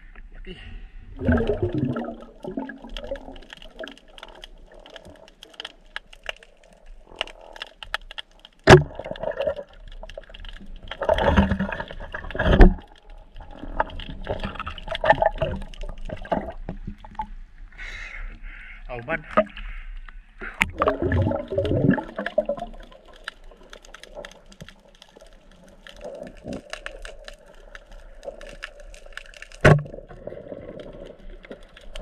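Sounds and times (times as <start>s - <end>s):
water rushing and gurgling: 1.1s - 7.5s, 20.4s - 32.0s
underwater clicks: 1.2s - 17.4s, 19.3s - 32.0s
sharp crack: 3.0s - 11.6s.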